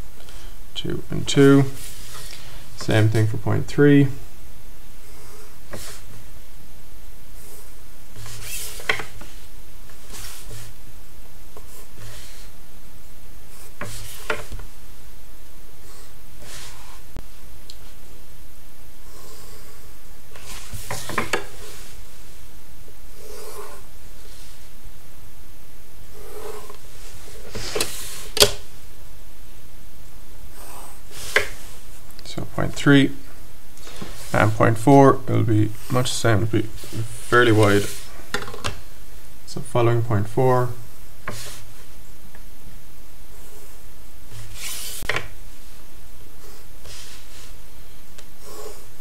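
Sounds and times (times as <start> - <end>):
pencil scratching on paper: 5.0 - 6.2, 7.4 - 10.8, 11.6 - 12.5, 13.5 - 14.5, 15.8 - 17.1, 23.2 - 24.4, 26.1 - 26.8, 30.5 - 31.8, 43.3 - 45.2, 46.4 - 47.6, 48.4 - 49.0.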